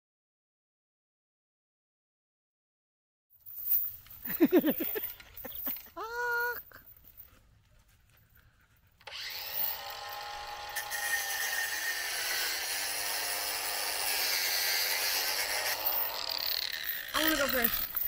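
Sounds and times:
angle grinder cutting steel chain: 3.7s - 6.0s, 9.0s - 18.0s.

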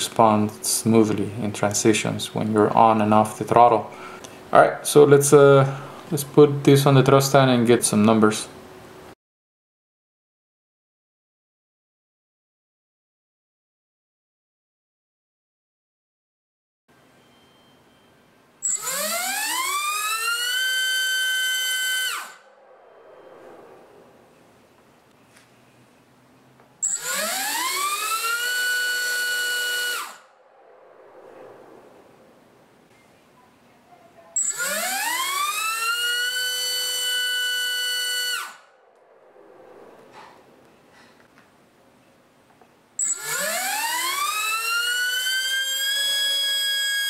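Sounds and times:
electric motor propeller whine: 18.6s - 25.1s, 26.8s - 32.9s, 34.4s - 41.2s, 43.0s - 47.0s.

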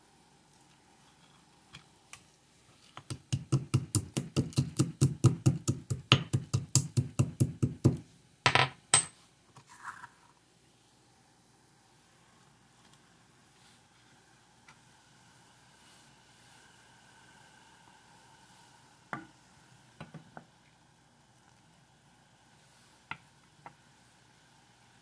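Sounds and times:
pestle pounding in mortar: 3.1s - 8.0s.

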